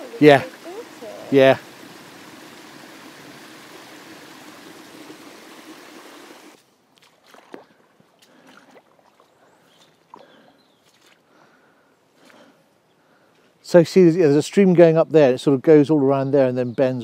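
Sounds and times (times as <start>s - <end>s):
stream water trickling: 0.0s - 11.4s
footsteps on wet grass: 6.5s - 11.6s.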